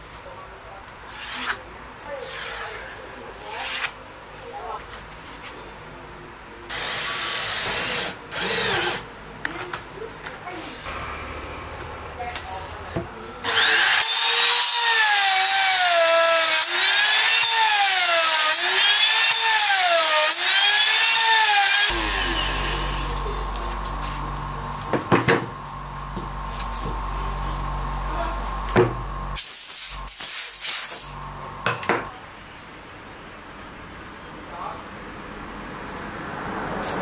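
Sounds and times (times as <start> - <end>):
router motor whine: 6.7 - 9.0, 13.4 - 25.0
air blow gun hissing: 21.8 - 23.4, 29.3 - 31.2.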